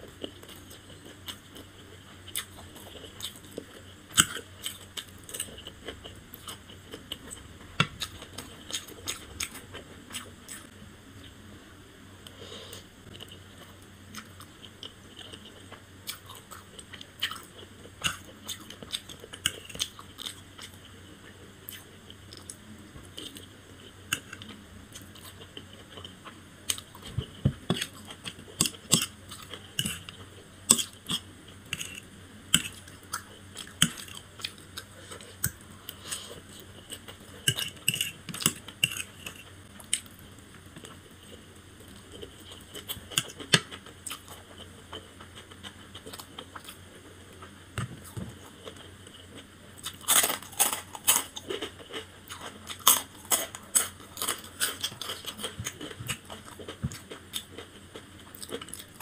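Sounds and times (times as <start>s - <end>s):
chewing noodles: 47.8s - 59.0s.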